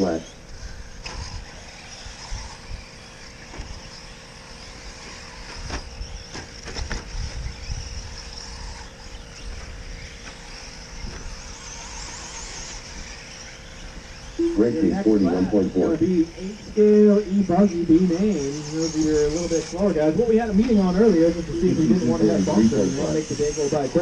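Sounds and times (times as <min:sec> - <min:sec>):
toy trucks whining: 0:00.0 - 0:24.0
wind rumbling on microphone: 0:05.1 - 0:24.0.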